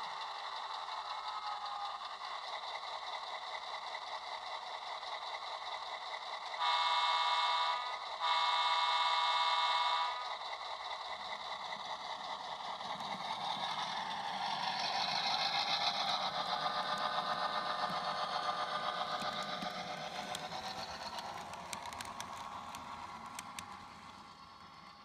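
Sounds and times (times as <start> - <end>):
small motor and wheel noise: 0.0 - 6.6, 9.2 - 25.0
model train diesel engine sound: 0.0 - 25.0
sharp clicks from rolling cars: 10.9 - 25.0.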